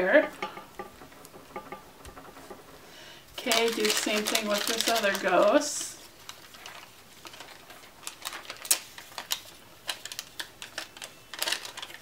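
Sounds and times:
paper strip clicks and crinkles: 0:03.4 - 0:12.0.

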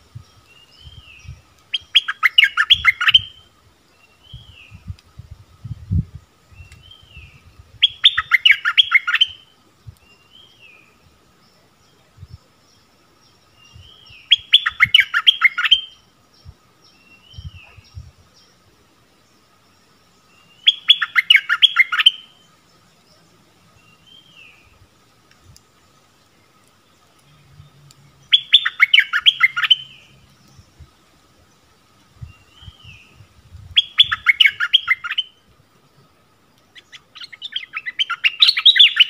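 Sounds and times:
bird chattering song: 0:00.2 - 0:03.4, 0:06.5 - 0:18.6, 0:20.2 - 0:24.8, 0:26.4 - 0:30.9, 0:33.8 - 0:35.4, 0:36.6 - 0:39.0.

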